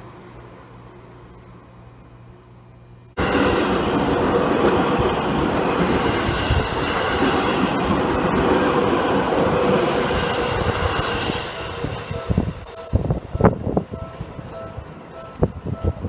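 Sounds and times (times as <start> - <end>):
electric train passing: 3.2 - 16.0
ringing tone: 12.2 - 15.9.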